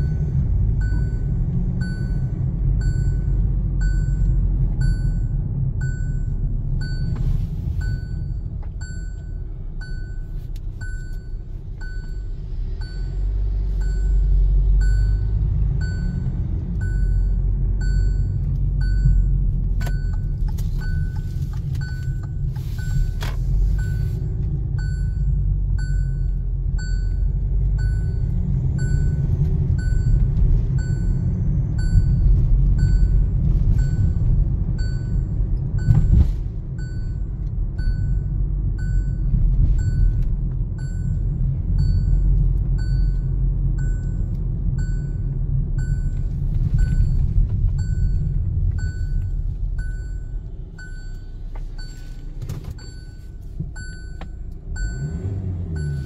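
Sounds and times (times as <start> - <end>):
short electronic beep: 0.0 - 24.2
diesel engine rumble: 0.0 - 56.0.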